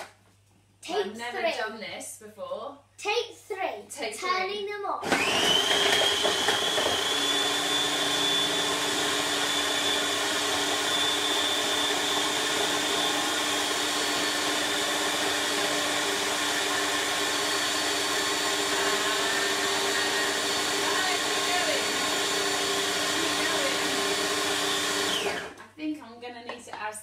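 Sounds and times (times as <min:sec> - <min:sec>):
food processor motor running: 0:05.0 - 0:25.6.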